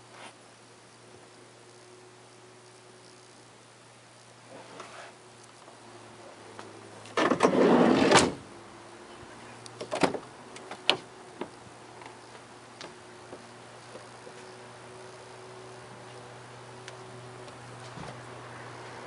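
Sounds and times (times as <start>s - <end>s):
sliding van door rolling shut: 7.2s - 8.4s.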